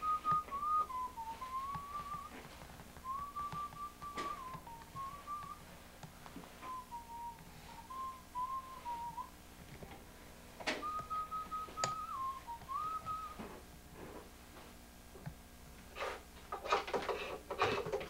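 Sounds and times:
person whistling a tune: 0:00.0 - 0:02.4, 0:03.0 - 0:05.6, 0:06.6 - 0:09.3, 0:10.8 - 0:13.5.

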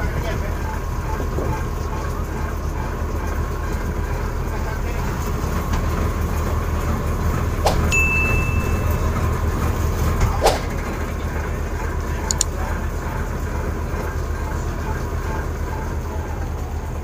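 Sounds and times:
diesel engine droning: 0:00.0 - 0:17.0
short high beep: 0:07.9 - 0:09.2
sharp clicks: 0:12.3 - 0:12.6.

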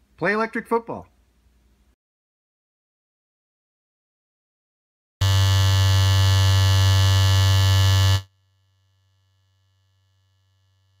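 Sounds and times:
loud electric buzz: 0:05.2 - 0:11.0.

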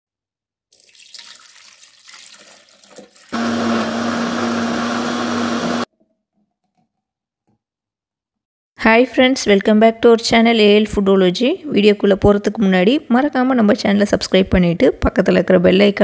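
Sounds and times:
milk pouring into plastic jar: 0:00.8 - 0:03.4
blender motor running: 0:03.3 - 0:05.9.

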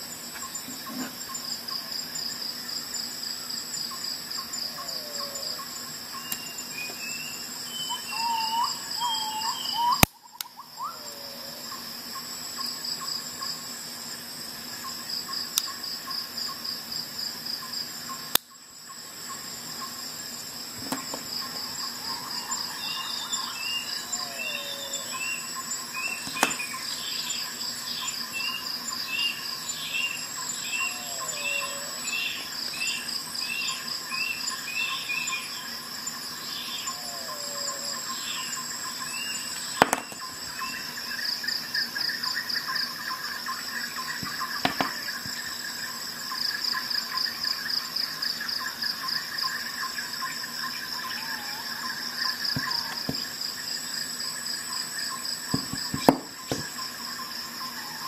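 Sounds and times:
insects chirring: 0:00.0 - 0:58.0
bird chirping: 0:03.8 - 0:12.3, 0:20.9 - 0:35.8
bird whistled calls: 0:06.2 - 0:11.1.

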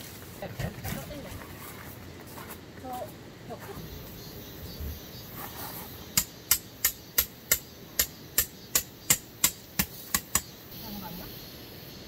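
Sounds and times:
hammer striking tent peg: 0:06.2 - 0:10.5.

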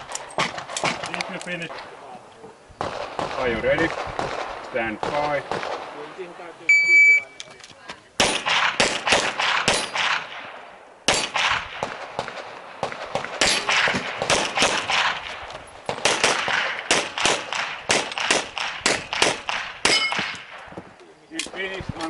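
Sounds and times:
rapid handgun fire: 0:02.8 - 0:06.1, 0:08.2 - 0:20.8.

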